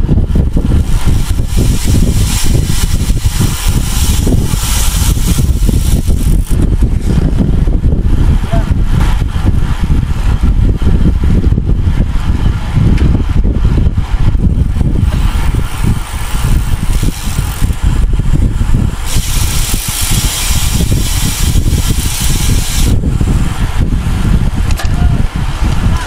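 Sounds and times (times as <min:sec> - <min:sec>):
wind buffeting microphone: 0:00.0 - 0:26.0
steady hiss: 0:00.8 - 0:07.1, 0:18.9 - 0:23.5.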